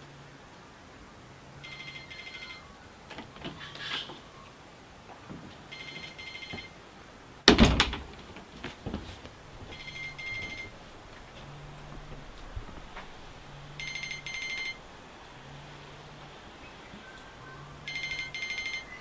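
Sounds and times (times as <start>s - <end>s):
phone ringtone beeps: 1.6s - 2.8s, 5.7s - 6.8s, 9.7s - 10.8s, 13.7s - 14.9s, 17.8s - 19.0s
loud thump: 7.5s - 9.2s
low buzz: 9.4s - 19.0s.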